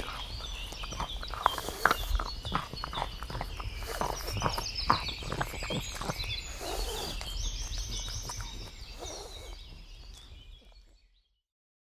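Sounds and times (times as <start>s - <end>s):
dog gnawing bone: 0.0s - 10.4s
birds singing: 0.0s - 11.4s.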